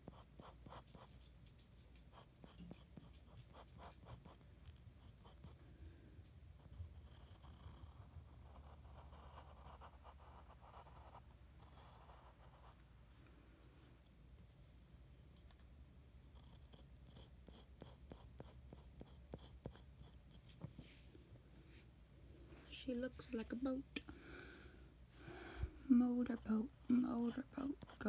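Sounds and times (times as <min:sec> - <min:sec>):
pencil scratching on paper: 0:00.0 - 0:01.1, 0:02.1 - 0:05.5, 0:06.6 - 0:12.8, 0:16.4 - 0:20.6, 0:26.1 - 0:28.0.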